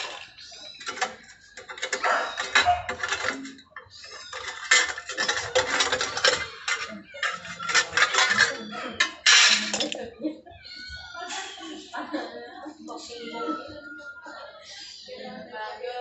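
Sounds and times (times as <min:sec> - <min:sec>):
metal tools clinking: 0:00.0 - 0:10.0.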